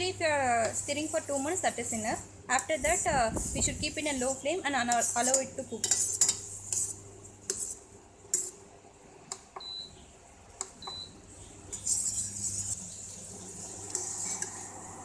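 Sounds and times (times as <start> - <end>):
spoon stirring in metal pot: 3.6 - 8.6, 11.7 - 14.8
spoon scraping pot bottom: 4.9 - 7.8, 13.9 - 14.7.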